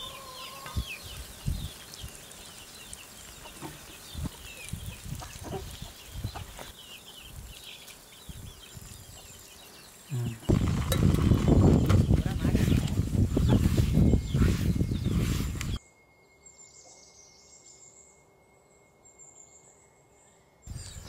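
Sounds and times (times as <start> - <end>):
chickens clucking and chirping: 0.0 - 15.8.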